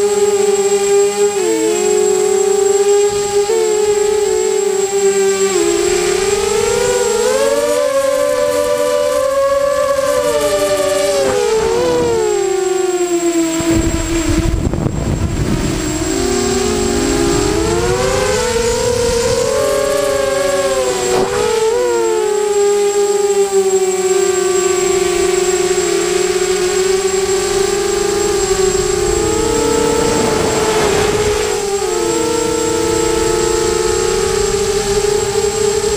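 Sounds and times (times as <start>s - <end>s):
drone motors whining: 0.0s - 35.9s
wind rumble: 13.5s - 22.8s, 24.7s - 35.9s.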